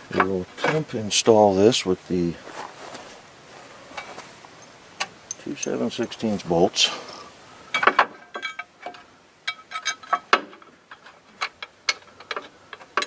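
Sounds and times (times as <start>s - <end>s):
metal bolts clicking and clinking: 4.0s - 6.3s, 6.9s - 13.0s.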